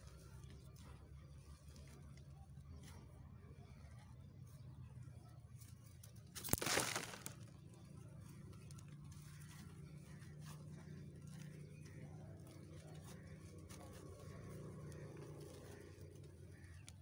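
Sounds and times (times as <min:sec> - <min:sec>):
cement lump cracking: 0:06.3 - 0:07.6
gritty crunch: 0:06.3 - 0:07.7
crumbles falling: 0:06.4 - 0:07.5.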